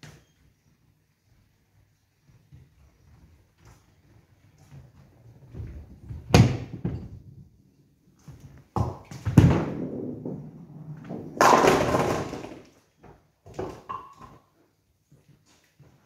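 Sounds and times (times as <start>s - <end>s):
bowling ball thudding and rolling: 5.5s - 7.3s, 8.7s - 14.5s
bowling pins clattering: 8.8s - 12.8s.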